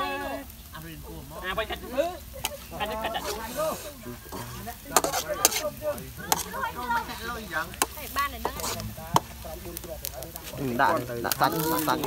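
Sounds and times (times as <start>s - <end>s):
food sizzling: 0.0s - 12.0s
metal spatula scraping wok: 2.4s - 9.4s.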